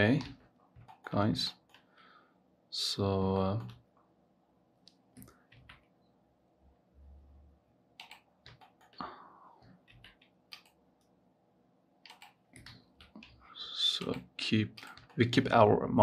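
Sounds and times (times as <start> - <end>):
computer keyboard key presses: 0.2 - 1.8, 8.0 - 9.0, 9.8 - 10.8, 12.0 - 13.4
mouse clicks: 8.0 - 9.0, 9.9 - 10.8, 12.0 - 13.4.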